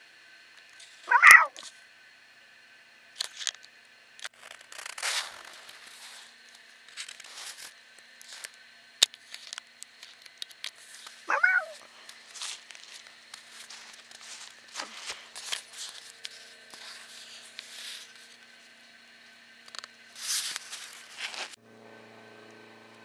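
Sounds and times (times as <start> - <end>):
cat meowing: 1.1 - 1.6, 11.3 - 11.8
sharp clicks and rustles: 3.2 - 18.7, 19.6 - 21.6.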